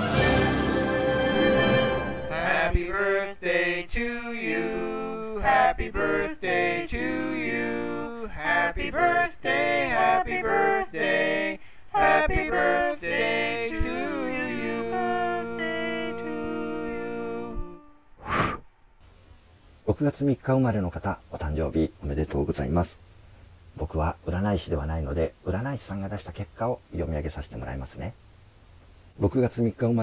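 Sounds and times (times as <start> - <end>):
orchestral fanfare: 0.0 - 2.4
male voices singing in harmony: 0.0 - 17.9.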